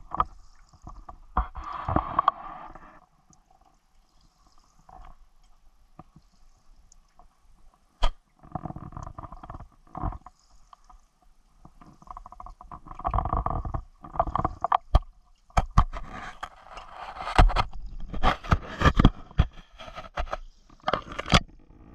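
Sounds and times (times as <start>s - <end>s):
stones clicking and scraping: 15.6s - 21.5s.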